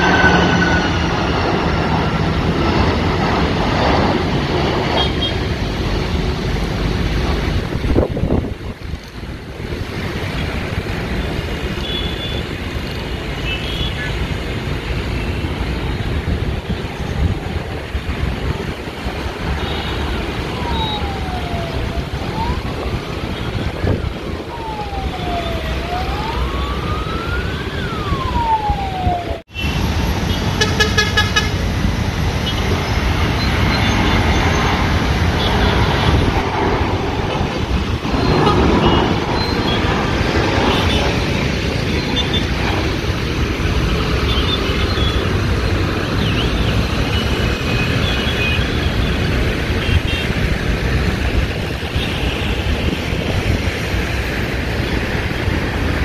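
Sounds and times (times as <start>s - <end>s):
siren wailing: 0.0s - 5.5s, 19.6s - 30.4s, 35.4s - 49.3s
vehicle rumble: 0.0s - 56.0s.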